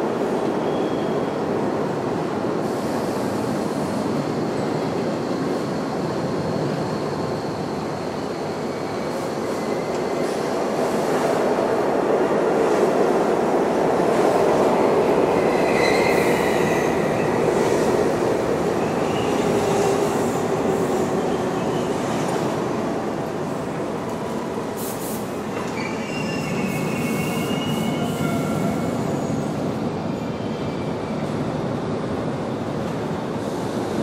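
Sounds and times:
train rumbling on rails: 0.0s - 34.0s.

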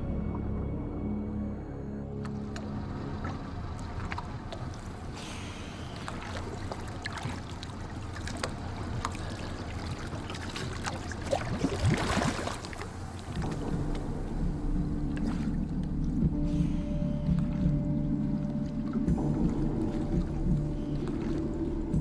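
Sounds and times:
low steady hum: 0.0s - 22.0s
water sloshing and splashing: 2.0s - 22.0s
bubbling water gush: 4.8s - 13.5s.

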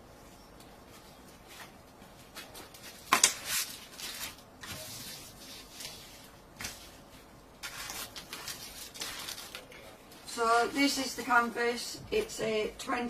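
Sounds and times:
canvas rustling and crinkling: 0.9s - 9.7s.

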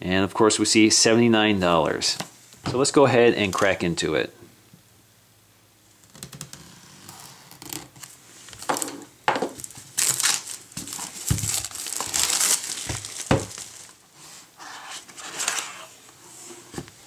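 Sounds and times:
plastic wrap crinkling: 6.0s - 14.0s
box cutter slitting plastic wrap: 9.6s - 13.9s.

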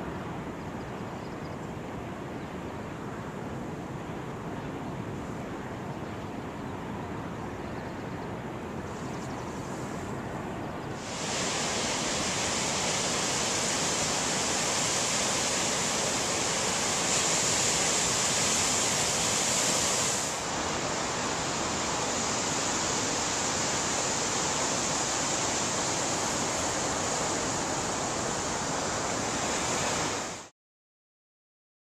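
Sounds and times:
ocean surf breaking on beach: 10.9s - 30.5s.

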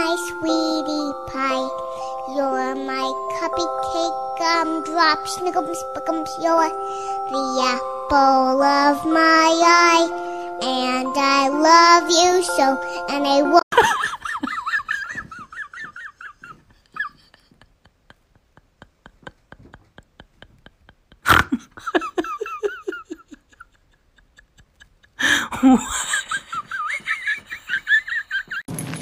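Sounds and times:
person laughing hard: 13.7s - 28.7s.

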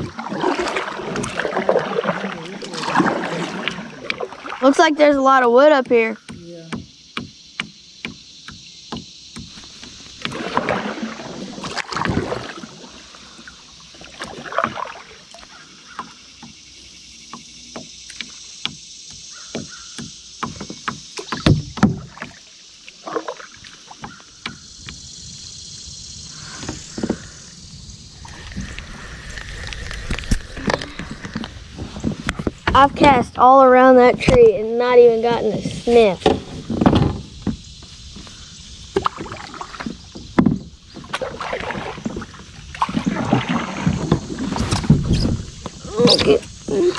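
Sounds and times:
paddle strokes swishing water: 0.0s - 6.3s, 8.9s - 25.4s, 28.2s - 46.9s
knocks against kayak hull: 5.7s - 10.8s, 17.3s - 22.4s, 36.2s - 46.4s
steady high hiss: 23.6s - 39.0s.

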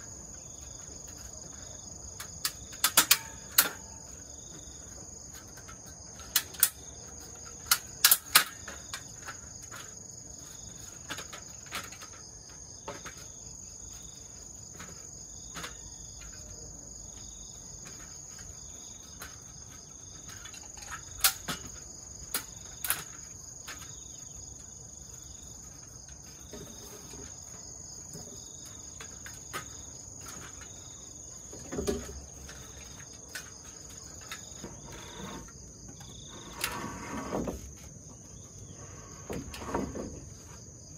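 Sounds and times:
insects buzzing: 0.0s - 40.9s
metal step ladder clanking: 2.2s - 4.5s.

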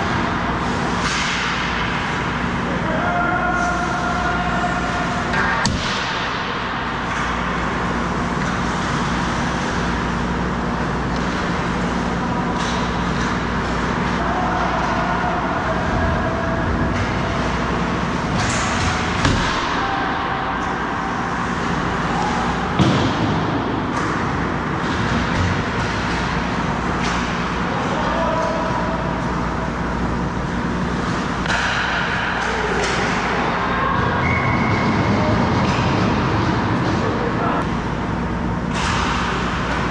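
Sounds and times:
stick hitting puck: 31.4s - 33.4s.

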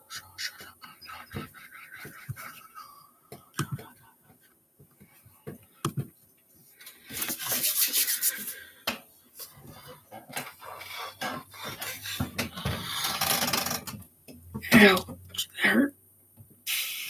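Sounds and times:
rubbing on microphone: 0.1s - 2.9s, 7.1s - 8.7s.

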